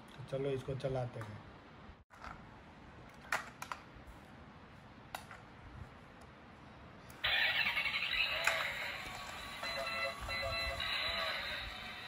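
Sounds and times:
toy electronic sound effects and music: 7.2 - 12.0.

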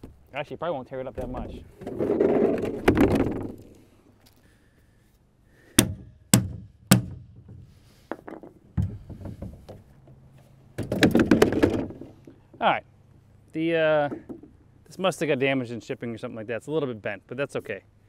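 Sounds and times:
plastic sled scraping on asphalt: 1.4 - 3.7
sharp knocks: 5.8 - 9.8.

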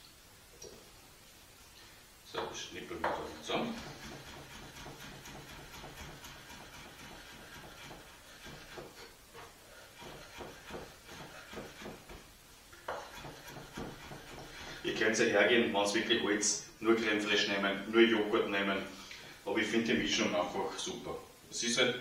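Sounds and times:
knife chopping on wooden board: 2.4 - 9.0, 10.0 - 12.2, 12.8 - 14.8.

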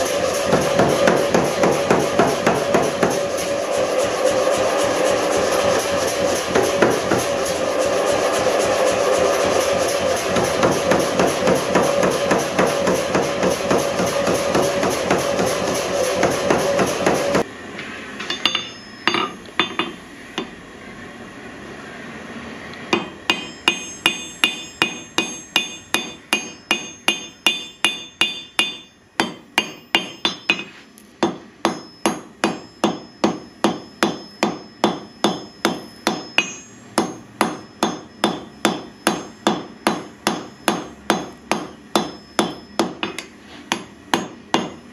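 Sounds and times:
power hammer pounding steel: 0.0 - 17.5, 22.9 - 44.9
hand hammer ringing on anvil: 18.2 - 20.5, 22.9 - 44.9.

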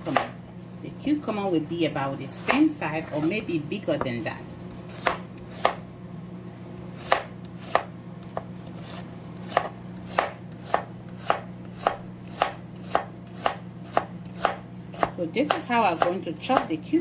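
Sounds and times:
knife chopping on cutting board: 4.9 - 5.8, 7.0 - 16.7.

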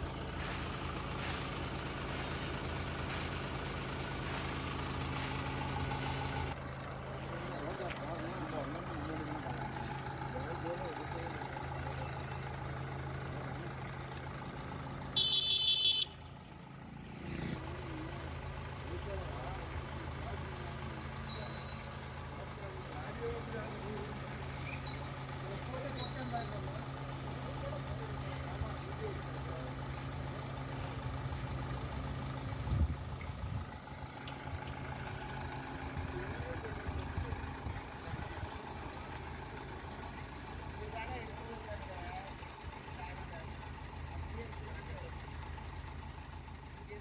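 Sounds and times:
diesel truck engine idling: 0.0 - 47.0
high-pitched electronic horn: 15.2 - 16.2.

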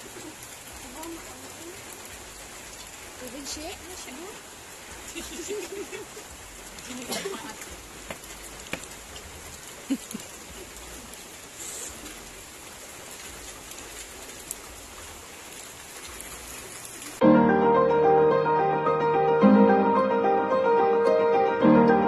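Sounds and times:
steady rain falling: 0.0 - 22.0
piano music: 17.2 - 22.0.

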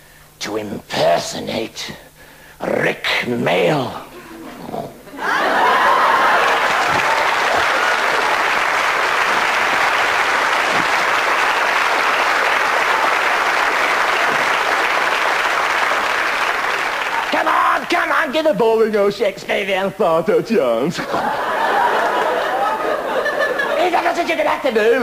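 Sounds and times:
audience applauding: 5.2 - 17.9.

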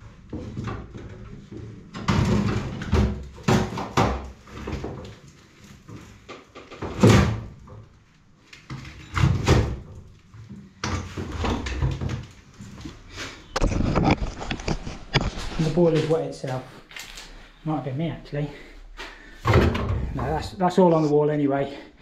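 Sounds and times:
boiler knocking and clunking: 0.2 - 5.3, 19.4 - 20.5.

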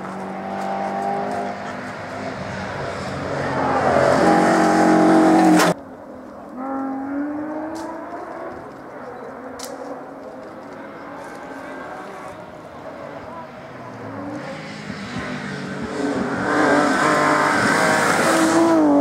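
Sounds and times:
rally car approaching: 0.0 - 5.8, 6.6 - 19.0
rally car engine passing: 0.0 - 5.8, 6.6 - 19.0.

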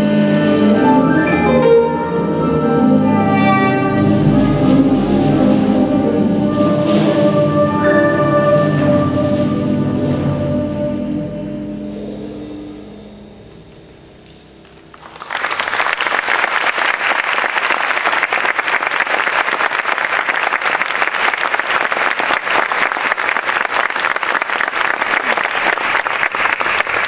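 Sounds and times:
jazz ensemble held notes: 0.0 - 15.4
audience applauding: 14.9 - 27.0.

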